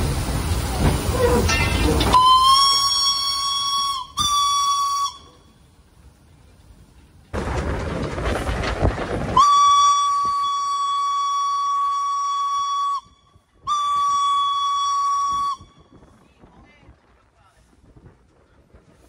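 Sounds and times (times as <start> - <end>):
hissing steam: 0.0 - 19.0
steam whistle blast: 1.1 - 5.5, 9.4 - 15.8.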